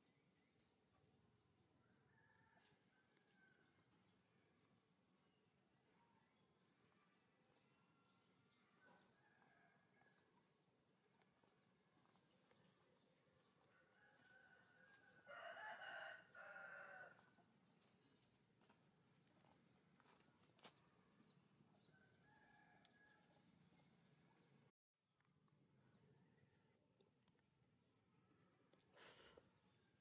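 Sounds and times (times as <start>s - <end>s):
rooster crowing: 13.8s - 17.3s.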